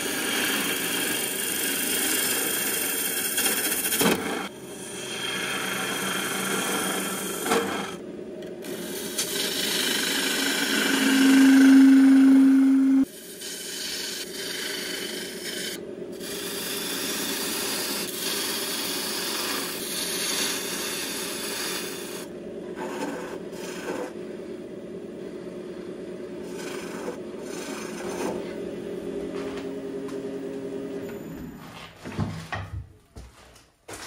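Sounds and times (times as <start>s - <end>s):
wood lathe hum: 0.0s - 31.6s
gouge scraping wood shavings: 8.9s - 22.2s, 22.8s - 24.2s, 26.4s - 28.6s.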